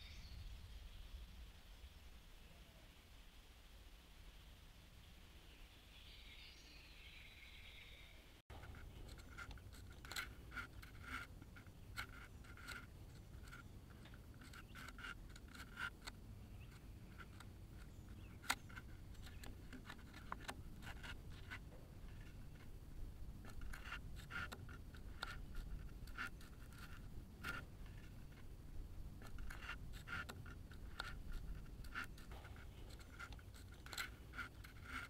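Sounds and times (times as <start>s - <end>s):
pencil scratching on wood: 8.5s - 35.0s.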